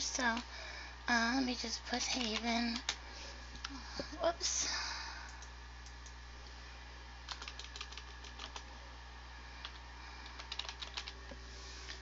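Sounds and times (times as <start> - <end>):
steady low hum: 0.0 - 12.0
keyboard keys clicking: 2.1 - 3.0, 7.3 - 8.6, 9.6 - 11.2.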